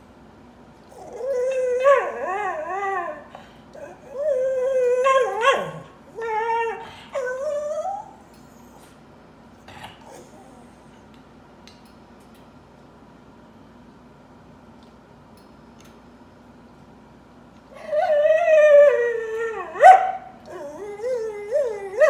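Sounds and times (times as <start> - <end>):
dog whining: 0.9 - 8.8, 17.7 - 22.0.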